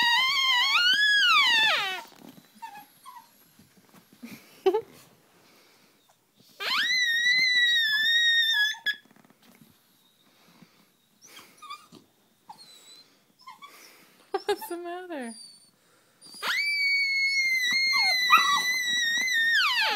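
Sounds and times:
squeeze toy squealing: 0.0s - 2.1s, 6.6s - 9.0s, 16.2s - 19.9s.

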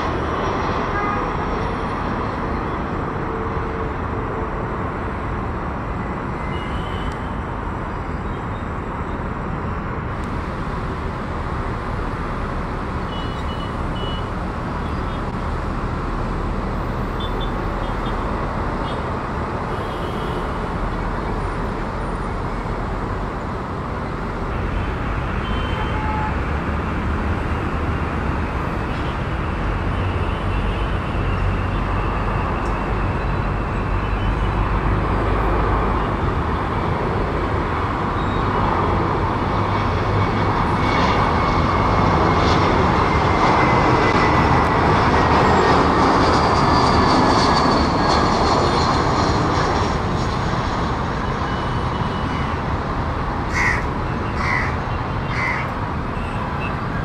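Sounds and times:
jet engine rush with falling whine: 0.0s - 57.0s
crow cawing: 53.5s - 55.7s.

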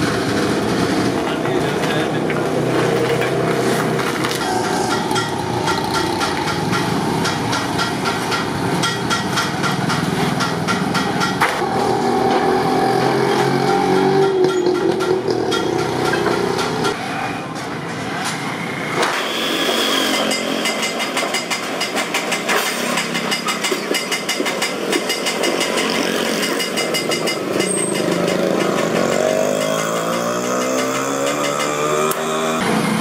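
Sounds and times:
motorcycles and rickshaws passing: 0.0s - 33.0s
engine revving: 11.4s - 17.0s, 27.6s - 33.0s.

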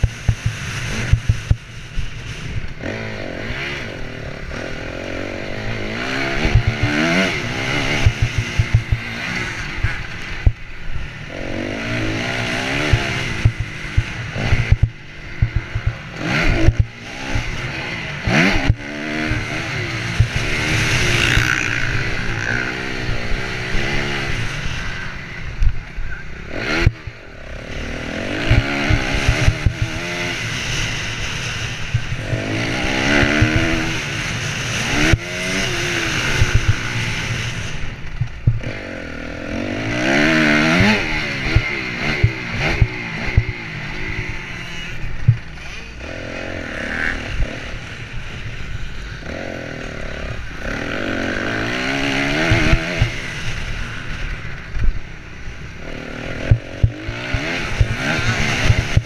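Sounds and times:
motocross engine revving: 0.0s - 59.0s
sharp knocks and clatter: 7.9s - 9.1s, 12.9s - 16.9s.

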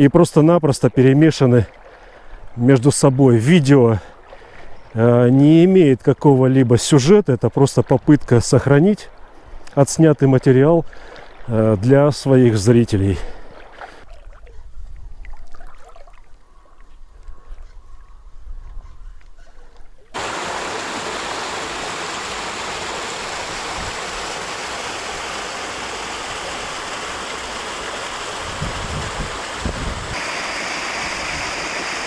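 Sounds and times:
stream water rushing: 20.2s - 32.0s.

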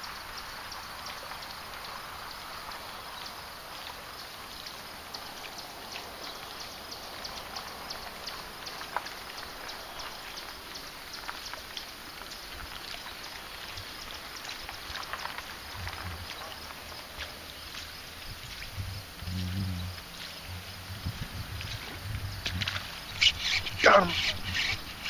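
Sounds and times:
soft steady hiss: 0.0s - 25.0s
low rumble: 15.6s - 23.2s.

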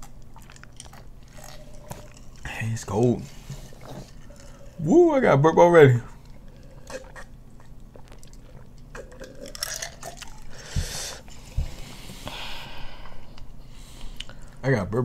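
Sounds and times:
people gulping drinks: 0.0s - 2.5s, 6.4s - 11.7s
swallowing and mouth sounds: 0.0s - 2.5s, 6.2s - 12.2s
breathy exhales: 10.5s - 14.6s.

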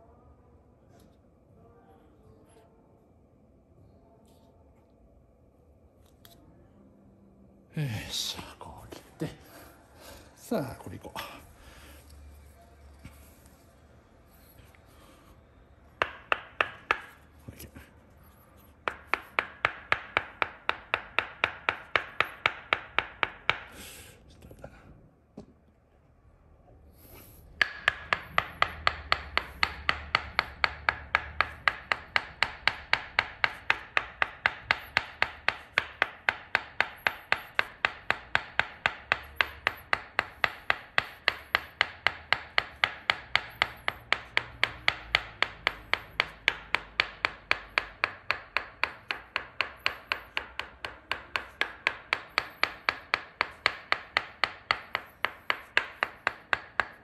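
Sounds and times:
wooden mallet tapping wooden wedge: 15.9s - 17.8s, 18.6s - 23.8s, 27.4s - 57.0s.

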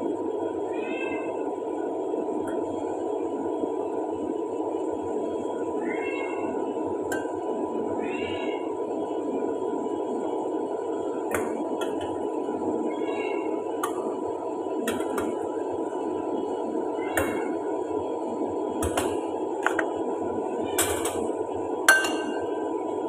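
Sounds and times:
dishes clinking in rack: 20.8s - 21.2s, 21.9s - 22.4s.

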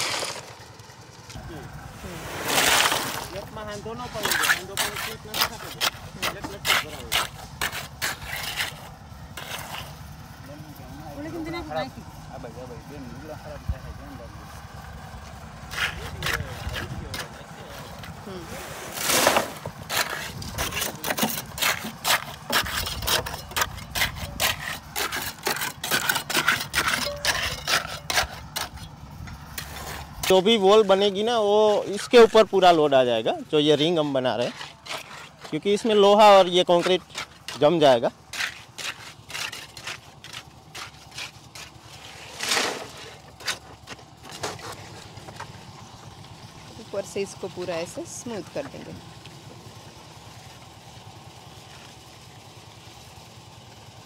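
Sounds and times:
trowel scraping wet concrete: 0.0s - 0.7s, 1.9s - 10.0s, 15.2s - 45.6s
engine humming: 0.0s - 54.0s
trowel scraping and tapping concrete: 4.1s - 9.9s.

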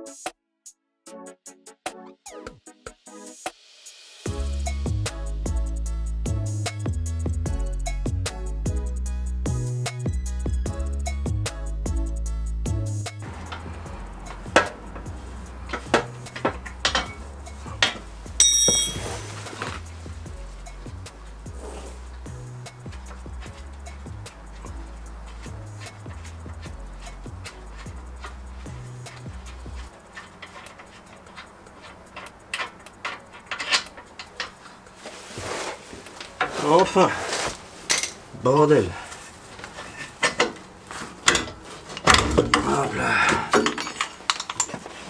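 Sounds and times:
metal tools knocking: 13.2s - 19.9s, 22.1s - 34.8s, 40.1s - 45.0s
ringing metallic clang: 17.8s - 19.4s.

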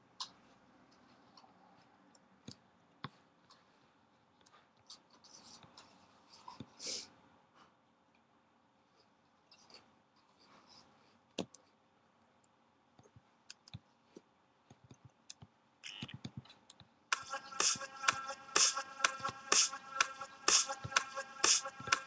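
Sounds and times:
music with a steady beat: 17.1s - 22.0s.

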